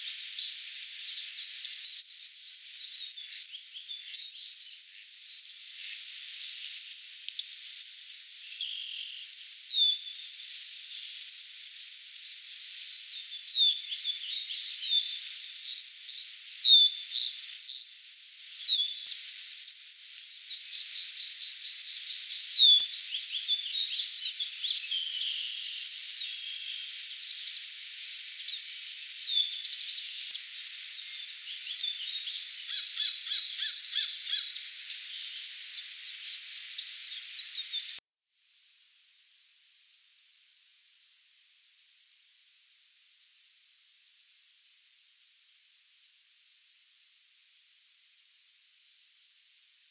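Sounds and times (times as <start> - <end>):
small birds chirping: 0.0 - 6.0, 7.3 - 38.0
bird trills: 13.4 - 17.8, 31.0 - 36.1.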